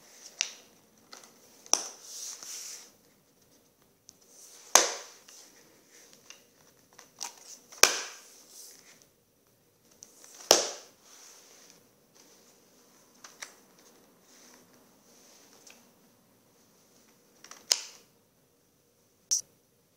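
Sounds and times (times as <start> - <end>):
book pages slapping down: 4.5 - 5.4, 6.3 - 8.3, 10.3 - 10.9.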